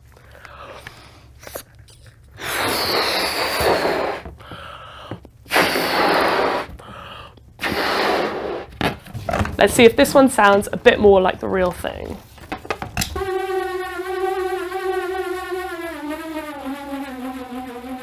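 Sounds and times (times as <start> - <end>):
person blowing up balloon: 0.5 - 8.8, 13.2 - 18.0.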